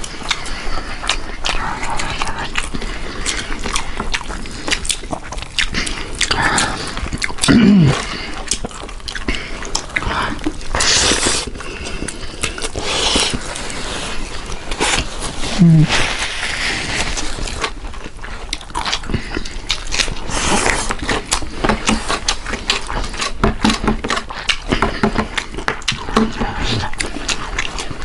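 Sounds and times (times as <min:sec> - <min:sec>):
wet chewing and lip smacks: 0:00.0 - 0:15.6, 0:16.9 - 0:28.0
short hum-like voice: 0:15.5 - 0:16.1.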